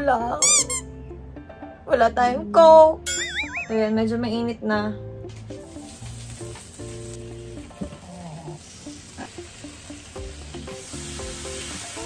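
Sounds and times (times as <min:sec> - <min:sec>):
meat sizzling on a grill plate: 0:05.6 - 0:12.0.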